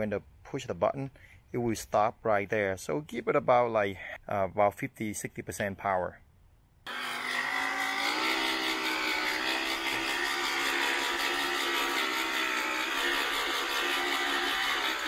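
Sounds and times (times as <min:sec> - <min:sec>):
electric motor whine: 0:06.9 - 0:15.0
spinning mower reel whir: 0:06.9 - 0:15.0.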